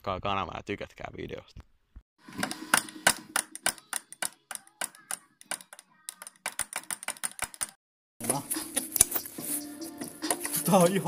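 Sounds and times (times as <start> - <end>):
metal clicks and knocks: 2.4 - 7.8.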